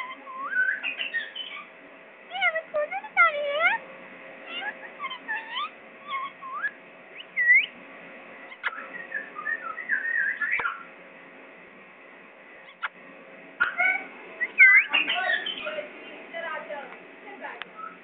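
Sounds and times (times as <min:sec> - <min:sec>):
parakeet whistling and chattering: 0:00.0 - 0:01.7, 0:02.3 - 0:03.8, 0:04.5 - 0:07.7, 0:08.5 - 0:10.9, 0:12.7 - 0:12.9, 0:13.6 - 0:15.8, 0:17.8 - 0:18.0.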